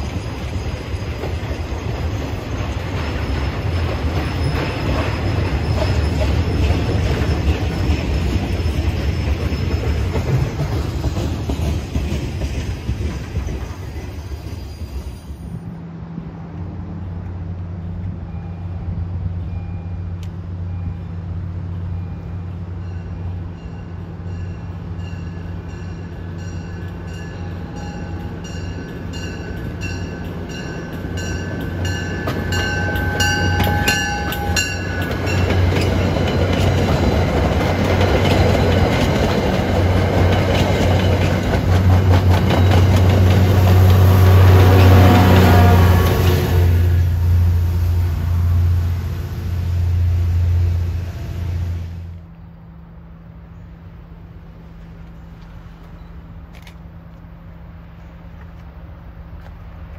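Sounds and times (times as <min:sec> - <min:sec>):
diesel locomotive engine drone: 0:00.0 - 0:59.9
train wheels rumbling on rails: 0:00.0 - 0:59.9
train bell ringing: 0:18.2 - 0:45.8.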